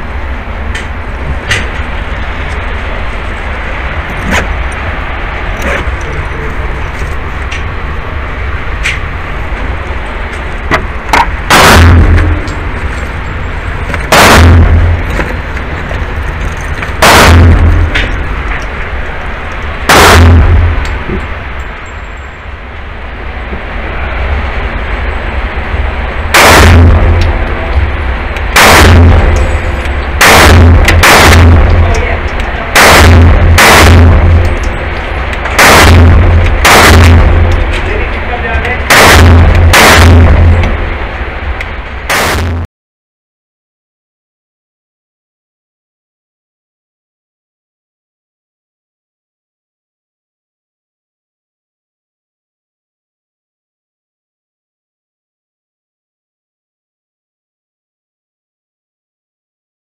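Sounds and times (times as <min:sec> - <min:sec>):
echoing gunshots: 0:11.1 - 0:12.8, 0:14.0 - 0:15.2, 0:17.0 - 0:18.4, 0:19.9 - 0:21.2, 0:26.3 - 0:41.2
pistol shots ringing indoors: 0:19.9 - 0:20.8, 0:26.4 - 0:27.4, 0:28.6 - 0:32.1, 0:32.8 - 0:34.8, 0:35.5 - 0:37.9, 0:38.9 - 0:40.8.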